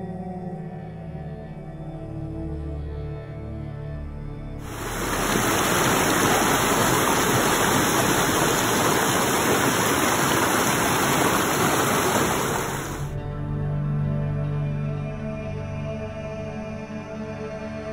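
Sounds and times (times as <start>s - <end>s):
water rushing over rocks: 4.6s - 13.1s.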